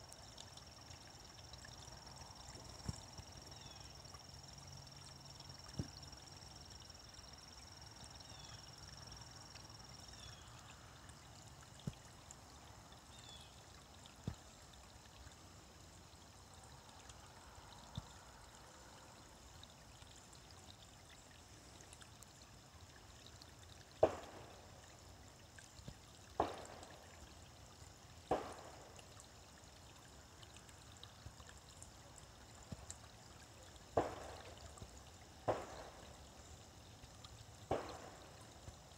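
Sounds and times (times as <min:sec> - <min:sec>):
creek trickling over stones: 0:00.0 - 0:38.9.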